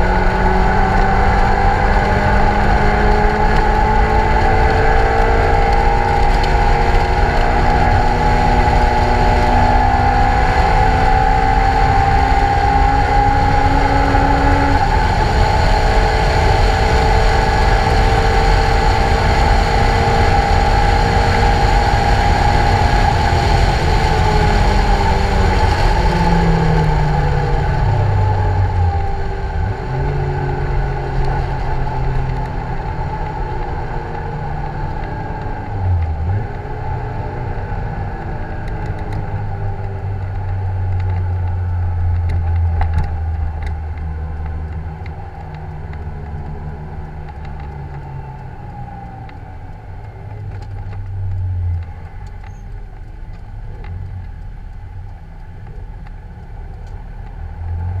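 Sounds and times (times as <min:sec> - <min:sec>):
road noise: 0:00.0 - 0:58.0
wind noise: 0:00.0 - 0:58.0.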